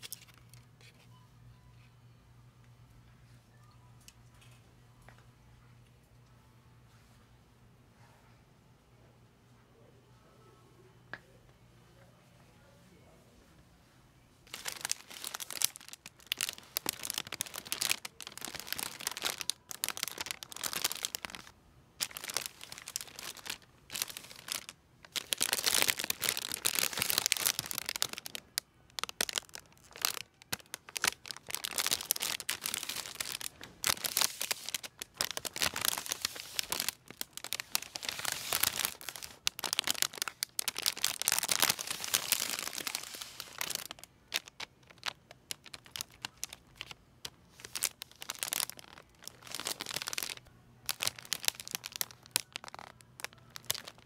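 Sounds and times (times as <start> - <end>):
cellophane crinkling: 0.0 - 1.0, 14.4 - 54.0.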